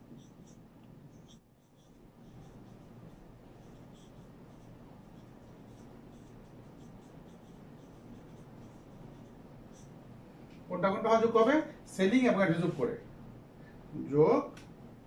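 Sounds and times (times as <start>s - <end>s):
marker squeaking on whiteboard: 0.0s - 10.0s.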